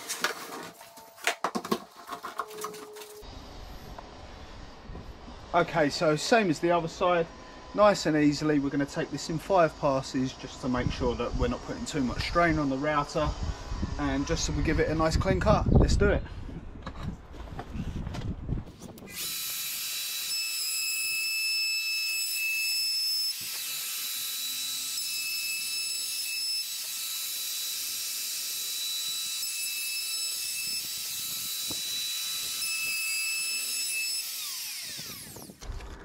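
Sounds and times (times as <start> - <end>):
router high whine: 19.1 - 36.0.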